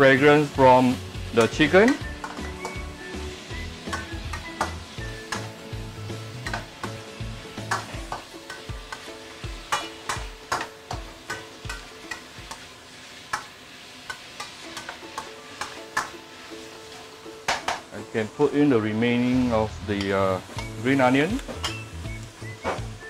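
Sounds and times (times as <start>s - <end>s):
chicken sizzling: 0.0s - 23.0s
metal spatula scraping a wok: 18.9s - 20.0s.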